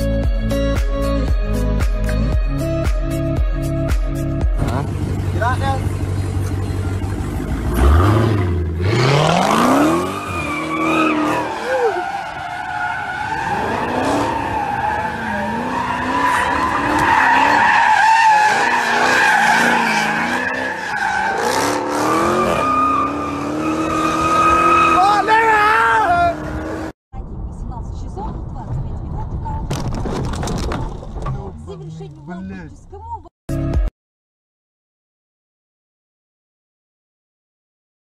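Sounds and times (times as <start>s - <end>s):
car engine revving: 4.4s - 27.0s
tyres squealing: 9.7s - 26.0s.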